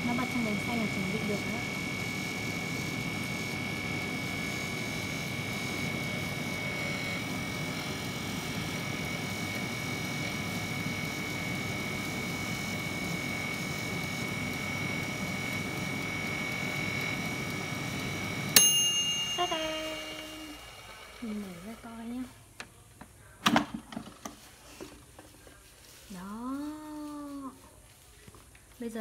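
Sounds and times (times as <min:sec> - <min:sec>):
air fryer fan whirring: 0:00.0 - 0:25.3
high whine: 0:14.3 - 0:22.0.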